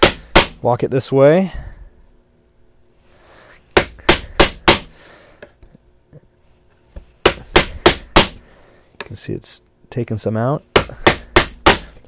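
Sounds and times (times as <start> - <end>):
mallet whacking chisel into wood: 0.0 - 0.6, 3.8 - 4.9, 7.2 - 8.4, 10.7 - 12.0.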